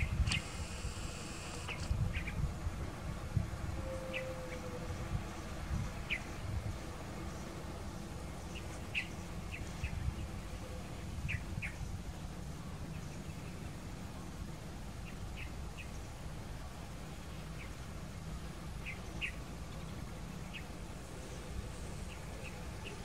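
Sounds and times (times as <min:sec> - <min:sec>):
small birds chirping: 0:07.2 - 0:12.0.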